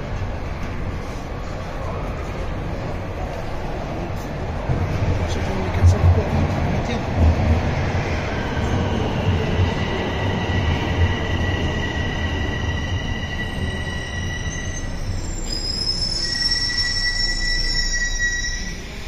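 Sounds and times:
subway train rumble: 0.0s - 19.0s
high-pitched wheel squeal: 11.2s - 19.0s.

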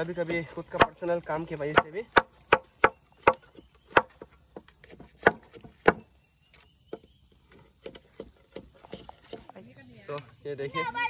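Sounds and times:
high insect buzz: 0.0s - 11.0s
machete chopping bamboo: 0.2s - 6.1s, 7.8s - 9.6s.

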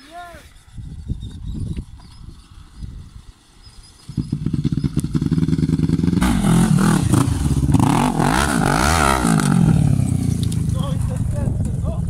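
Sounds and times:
atv engine revving: 3.9s - 12.0s
louder engine revving hard: 4.3s - 10.5s.

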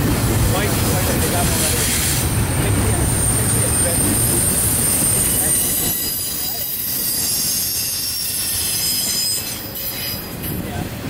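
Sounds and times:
freight train wheels rumbling on rail: 0.0s - 11.0s
high wheel squeal: 2.8s - 10.6s.

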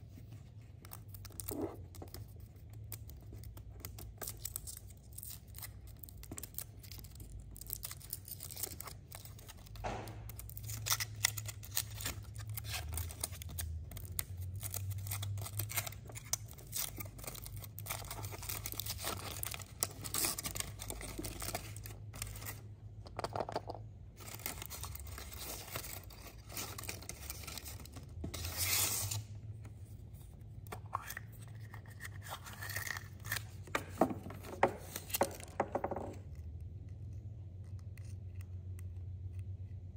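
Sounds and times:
foil wrapper crinkling and tearing: 0.8s - 22.6s.

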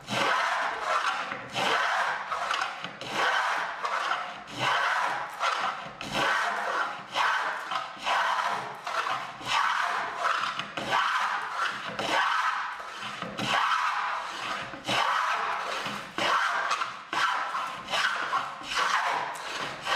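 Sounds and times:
plane shaving wood: 0.0s - 19.9s.

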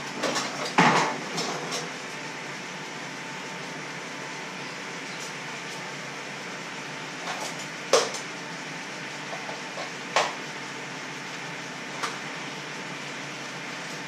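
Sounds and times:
rushing kitchen noise: 0.0s - 2.2s.

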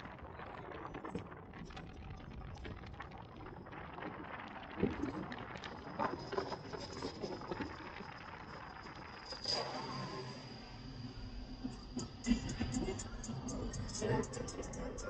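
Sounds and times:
faint high whine: 6.0s - 15.0s.

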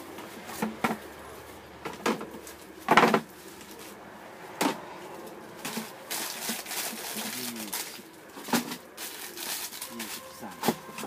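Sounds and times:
plastic crates bumping: 0.2s - 1.1s, 1.8s - 3.8s
bread bag rustling: 5.5s - 11.0s.

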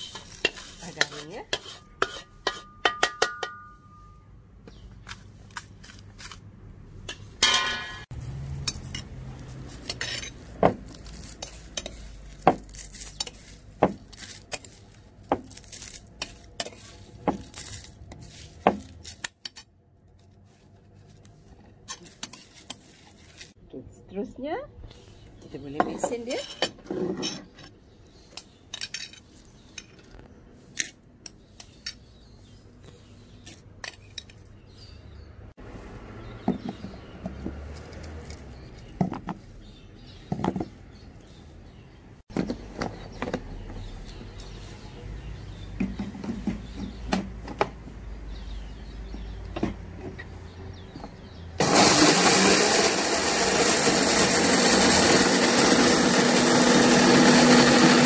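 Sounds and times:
metal spoon scraping ceramic bowl: 0.0s - 4.2s, 8.7s - 12.2s, 25.9s - 27.5s
blender grinding: 51.6s - 58.0s.

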